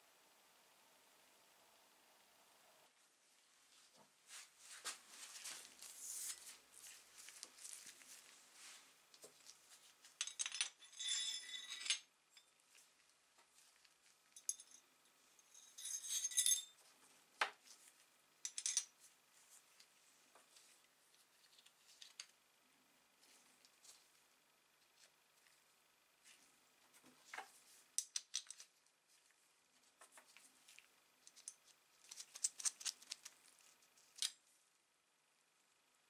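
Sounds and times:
metal parts clinking and scraping: 10.2s - 12.5s, 14.4s - 14.8s, 15.4s - 16.8s, 18.5s - 18.9s, 31.2s - 33.4s.

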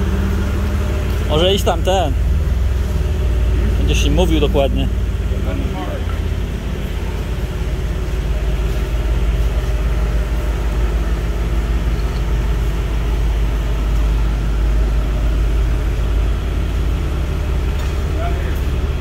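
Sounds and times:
forklift engine running: 0.0s - 19.0s.

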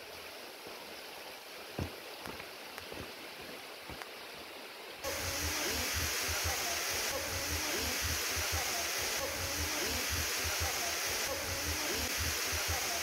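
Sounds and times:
waterfall rushing: 5.0s - 13.0s.

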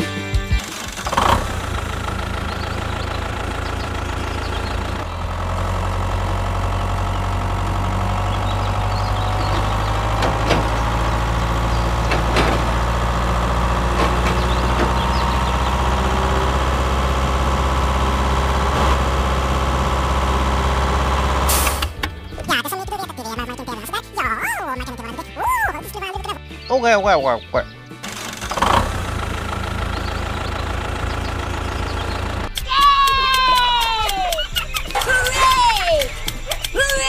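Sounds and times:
tractor engine idling: 0.0s - 26.3s, 27.9s - 37.0s
sharp clicks: 32.3s - 37.0s.

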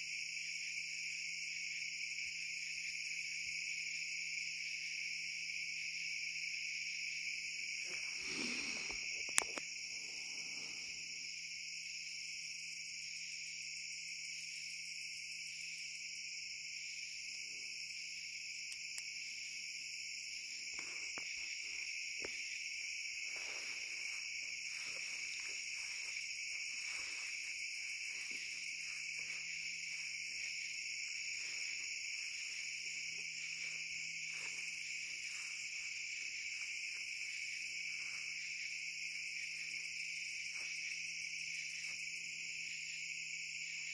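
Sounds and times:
crickets trilling: 0.0s - 43.9s
faint rustles: 23.2s - 35.9s.

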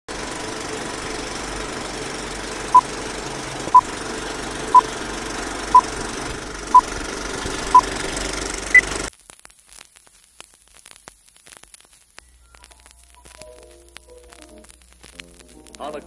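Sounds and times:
film projector whirring: 0.1s - 9.1s.

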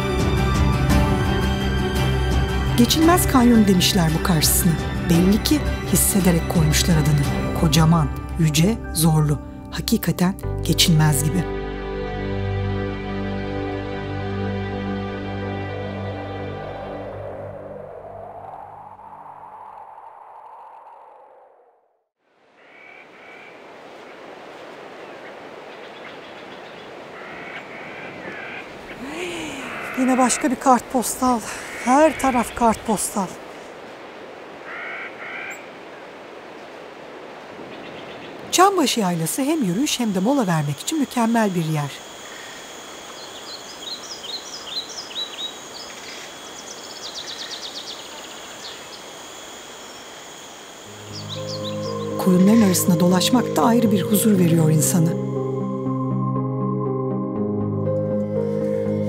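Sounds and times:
outdoor hiss: 22.2s - 53.4s
songbird chirping and trilling: 37.6s - 56.1s
sustained tone: 50.9s - 59.0s.

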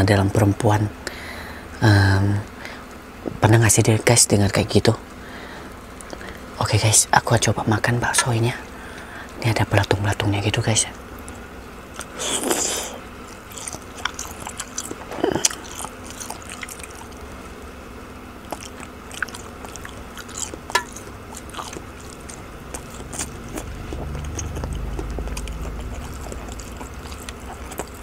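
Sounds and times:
close chewing with mouth clicks: 11.2s - 28.0s.

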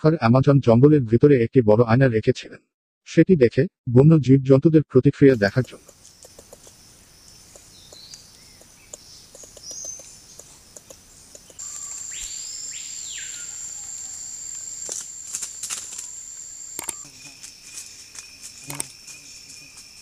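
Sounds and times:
high-pitched insect drone: 5.4s - 20.0s
faint high bird chirps: 7.2s - 17.5s
whistled call: 11.6s - 17.3s
sharp taps in leaf litter: 14.8s - 16.1s.

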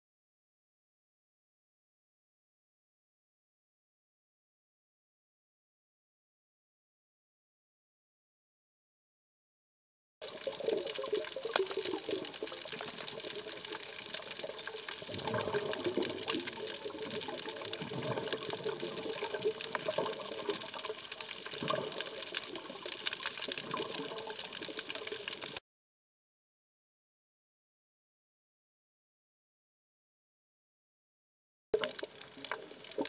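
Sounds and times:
bubbling: 10.2s - 25.6s, 31.8s - 33.0s
underwater rush of water: 10.2s - 25.6s, 31.8s - 33.0s
sharp underwater clicks: 31.8s - 33.0s.

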